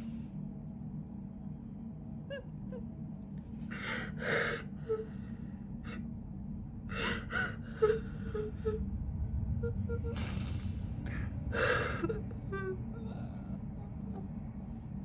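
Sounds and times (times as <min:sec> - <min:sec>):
woman sobbing and sniffling: 0:07.0 - 0:08.8, 0:10.0 - 0:14.3.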